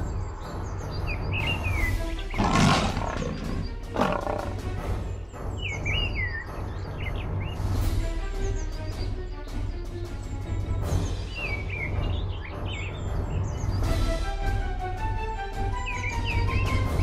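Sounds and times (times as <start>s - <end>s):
bird chirps: 0.0s - 7.8s, 10.9s - 13.9s
loud harsh animal calls: 2.3s - 4.7s.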